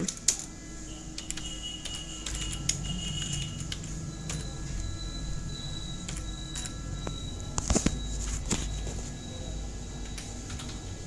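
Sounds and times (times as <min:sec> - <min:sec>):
steady low hum: 0:00.0 - 0:11.0
keyboard keys clicking: 0:01.2 - 0:04.5.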